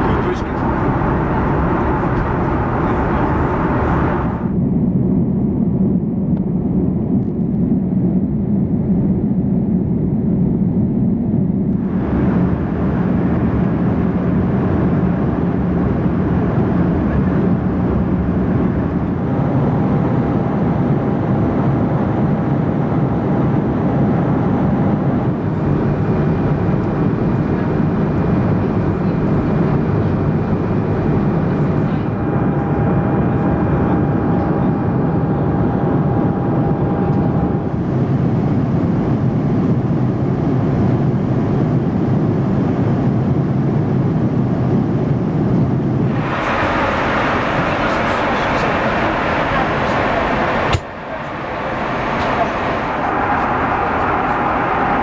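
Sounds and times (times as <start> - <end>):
airplane cabin engine roar: 0.0 - 55.0
faint steady whine: 24.3 - 42.1, 44.8 - 55.0.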